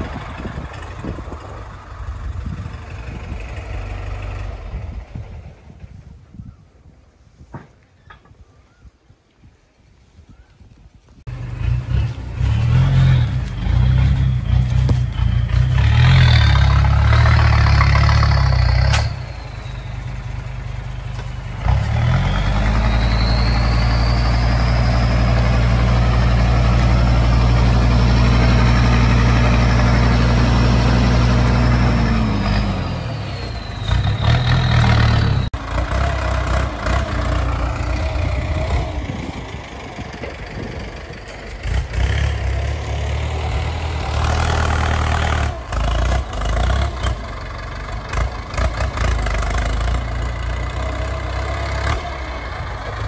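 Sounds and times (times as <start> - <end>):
diesel truck engine revving: 0.0 - 5.7, 11.3 - 53.0
high engine whine: 11.3 - 53.0.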